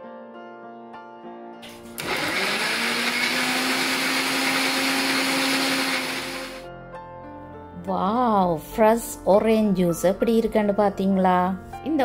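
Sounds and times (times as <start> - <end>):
mixer grinder motor whine: 1.6 - 6.7.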